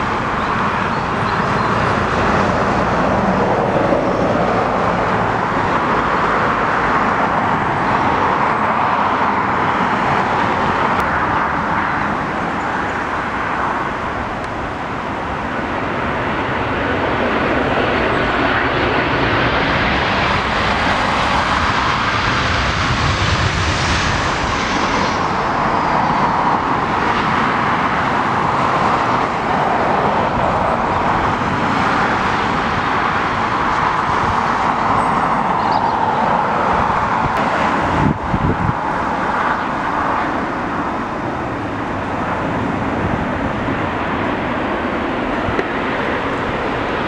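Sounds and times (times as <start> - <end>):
jet engines rushing: 0.0 - 47.0.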